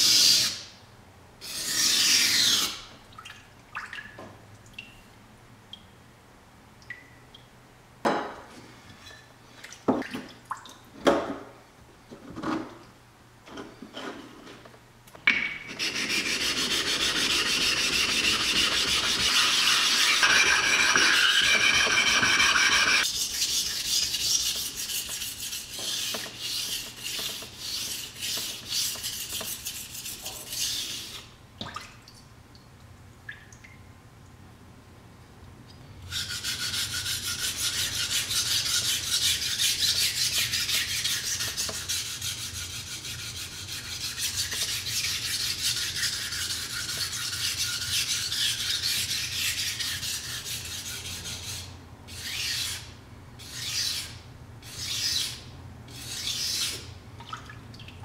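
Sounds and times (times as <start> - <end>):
knife scraping on whetstone: 15.7 - 31.3.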